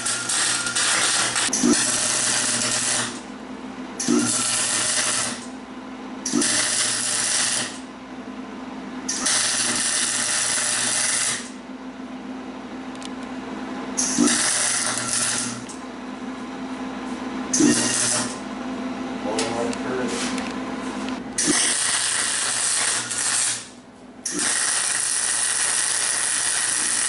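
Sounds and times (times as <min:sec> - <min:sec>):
welder arc crackling and hissing: 0:00.0 - 0:03.3, 0:04.0 - 0:05.5, 0:06.2 - 0:07.8, 0:09.1 - 0:11.6, 0:14.0 - 0:15.8, 0:17.5 - 0:18.4, 0:21.4 - 0:27.0.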